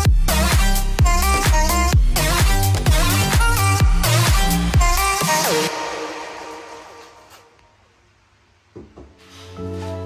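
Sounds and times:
kick drum: 0:00.0 - 0:05.1.

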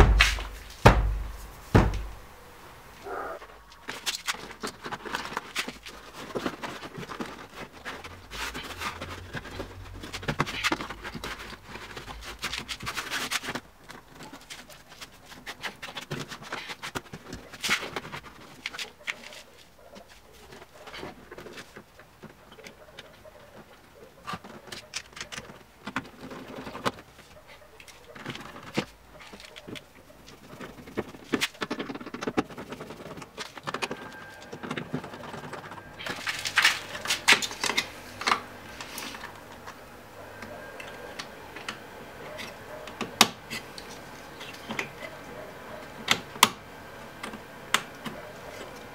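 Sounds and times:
foam panel rustling and clicking: 0:00.0 - 0:02.2, 0:03.5 - 0:39.8.

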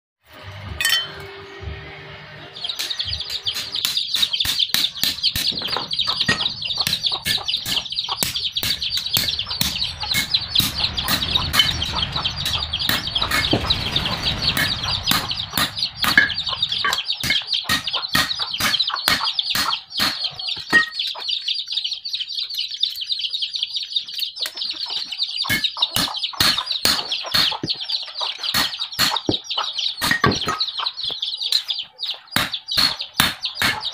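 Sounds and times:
high-pitched chirring: 0:00.5 - 0:21.2
metallic ring: 0:00.7 - 0:01.6, 0:08.4 - 0:18.8
hammer striking steel bar: 0:00.8 - 0:01.4, 0:02.7 - 0:21.0, 0:25.5 - 0:27.8, 0:28.6 - 0:29.4, 0:32.4 - 0:33.9.

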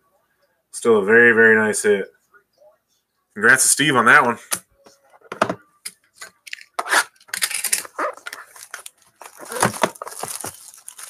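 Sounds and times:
shrink wrap crinkling and tearing: 0:06.5 - 0:11.0.

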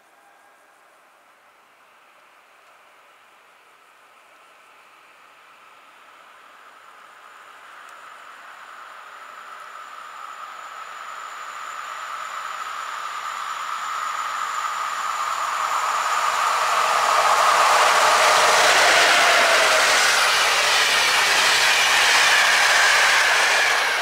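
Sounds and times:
electric locomotive high hum: 0:00.2 - 0:24.0
train wheels rumbling on rails: 0:05.9 - 0:24.0.

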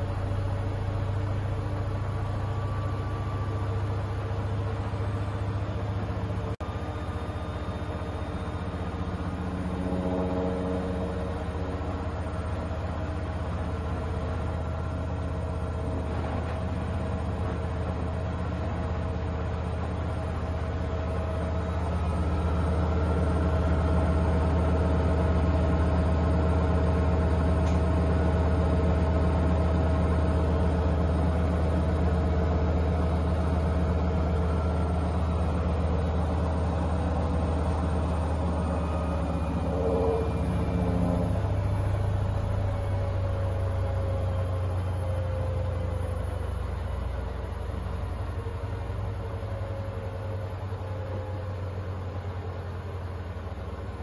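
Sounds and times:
high whine: 0:00.0 - 0:18.3, 0:32.9 - 0:43.8
washing machine motor hum: 0:00.0 - 0:54.0.

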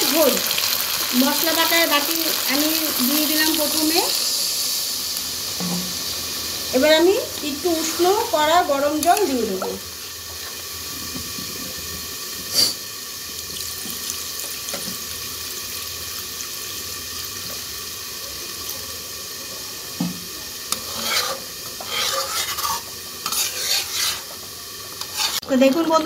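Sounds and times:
metal spatula scraping pan: 0:07.7 - 0:08.4, 0:20.7 - 0:24.4, 0:25.0 - 0:25.8.

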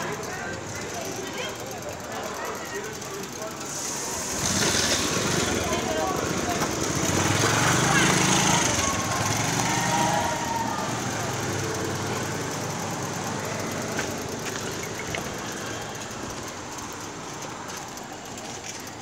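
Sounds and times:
vehicle engine running: 0:00.0 - 0:19.0
faint clicks: 0:10.6 - 0:19.0.

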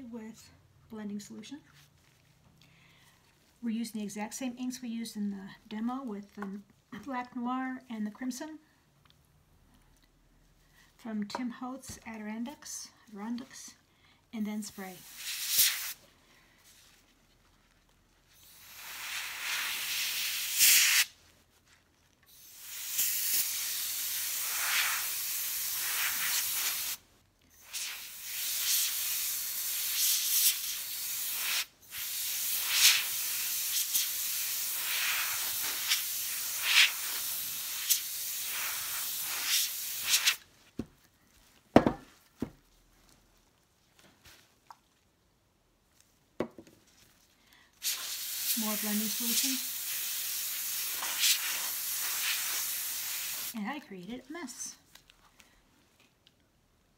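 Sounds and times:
air blown through a straw hissing: 0:18.4 - 0:21.1, 0:22.3 - 0:27.0, 0:27.6 - 0:40.4.

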